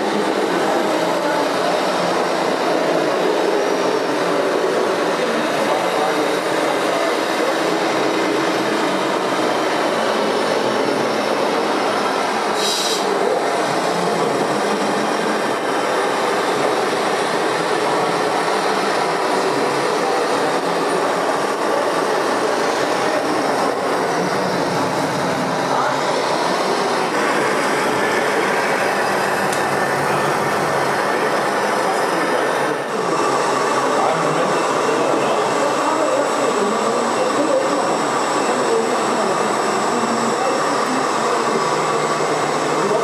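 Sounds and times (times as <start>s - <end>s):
model trucks running: 0.0s - 43.0s
brief high hiss: 12.6s - 13.2s.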